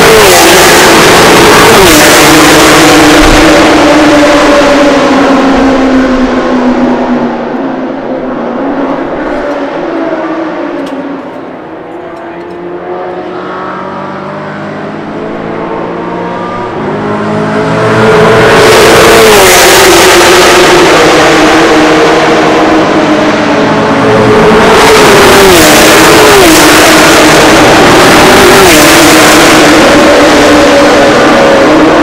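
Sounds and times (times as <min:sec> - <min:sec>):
distant race car engines: 0:00.0 - 0:32.0
race car engine passing by: 0:12.0 - 0:32.0.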